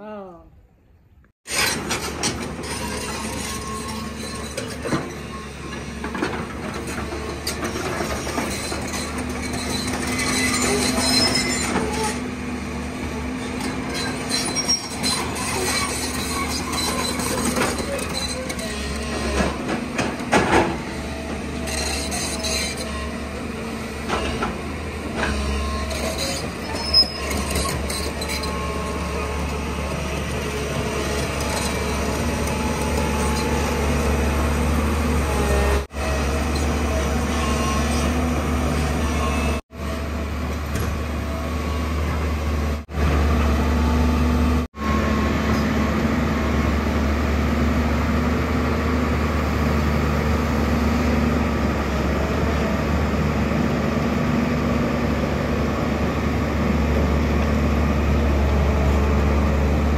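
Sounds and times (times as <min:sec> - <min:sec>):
metallic squeaks and clanks: 0:01.5 - 0:12.3, 0:13.2 - 0:40.0
excavator diesel engine running: 0:01.5 - 0:59.9.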